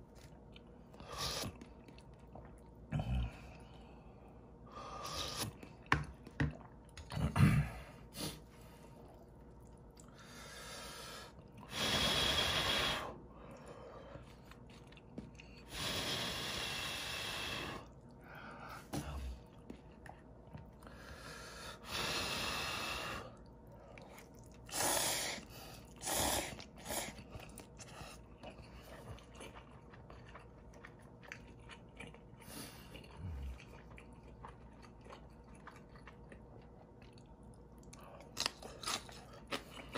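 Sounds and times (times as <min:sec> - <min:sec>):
chewing: 0:00.0 - 0:04.0, 0:08.4 - 0:10.3, 0:13.4 - 0:15.7, 0:23.3 - 0:24.8, 0:25.7 - 0:39.9.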